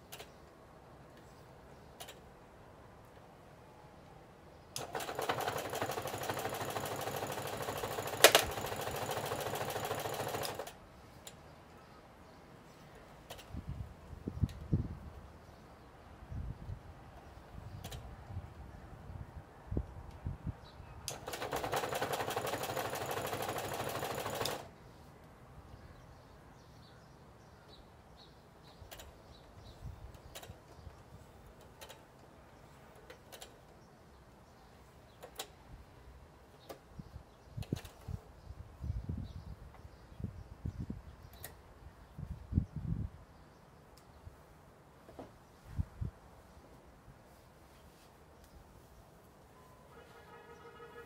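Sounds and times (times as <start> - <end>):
sewing machine clatter: 4.8 - 10.8, 21.1 - 24.7.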